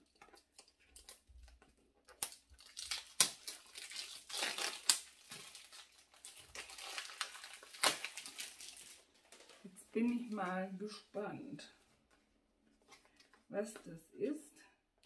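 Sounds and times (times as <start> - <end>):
plastic film crinkling: 0.0 - 10.7
foil snapping: 0.1 - 9.5.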